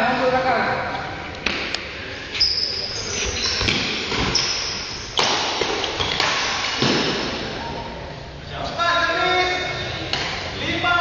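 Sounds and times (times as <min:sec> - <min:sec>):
sneaker squeaks on court floor: 0:02.4 - 0:05.3
racket hitting shuttlecock: 0:05.2 - 0:07.3.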